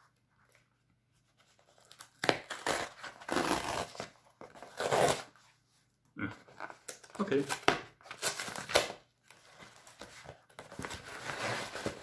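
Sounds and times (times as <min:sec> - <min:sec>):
cardboard tearing: 0:01.7 - 0:05.3, 0:06.9 - 0:09.0, 0:09.8 - 0:12.0.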